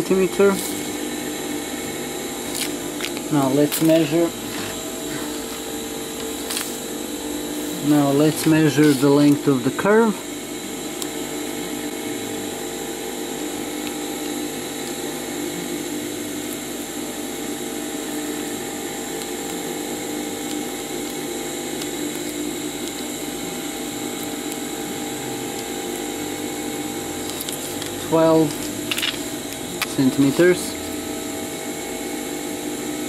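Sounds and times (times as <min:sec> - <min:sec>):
machine hum with whining tone: 0:00.0 - 0:33.0.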